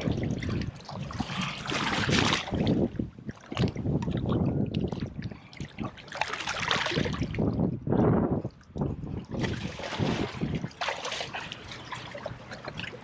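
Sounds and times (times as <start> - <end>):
water splashing against rocks: 0.0 - 7.7, 8.6 - 13.0
wind buffeting microphone: 0.0 - 10.9.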